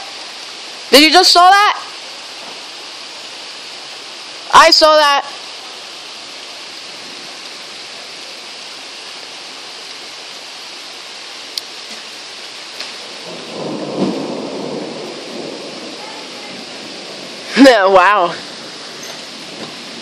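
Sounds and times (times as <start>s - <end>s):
heavy rain pouring: 0.0s - 20.0s
thunder rumbling: 13.1s - 20.0s.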